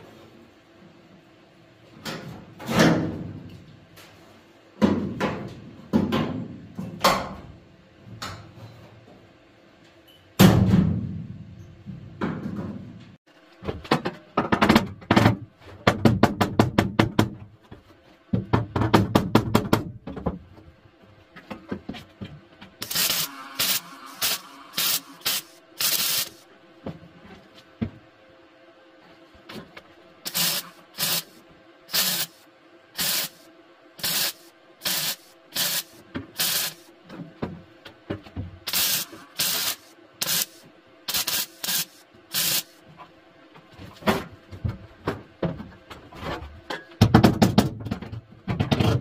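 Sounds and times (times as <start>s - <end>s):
welding crackle: 22.8s - 26.4s, 30.3s - 32.4s, 33.0s - 33.4s, 34.0s - 36.8s, 38.7s - 42.8s.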